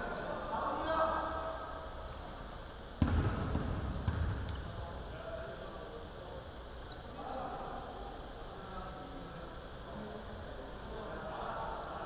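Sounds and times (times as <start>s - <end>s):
sneaker squeaks: 0.0s - 0.5s, 2.4s - 5.0s, 6.9s - 7.7s, 9.2s - 9.9s
basketball bouncing on hardwood: 3.0s - 4.4s.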